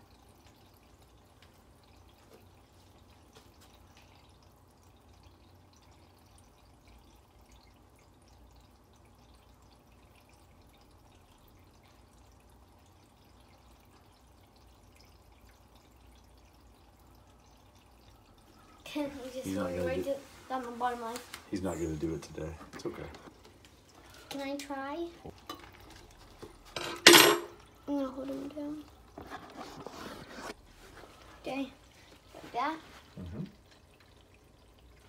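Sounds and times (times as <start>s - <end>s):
aquarium water dripping and trickling: 0.0s - 35.0s.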